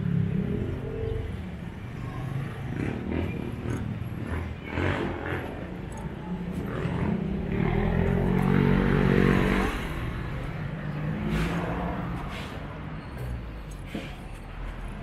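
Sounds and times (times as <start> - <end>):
street traffic noise: 0.0 - 15.0
vehicle engine passing: 2.0 - 12.8.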